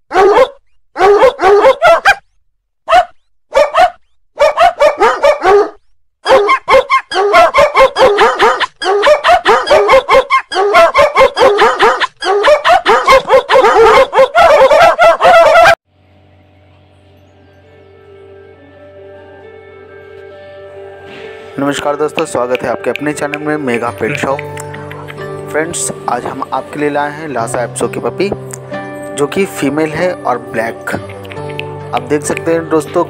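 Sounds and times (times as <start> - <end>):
dog barking in high yaps: 0.1 - 2.2, 2.9 - 15.8
faint music: 16.1 - 24.7.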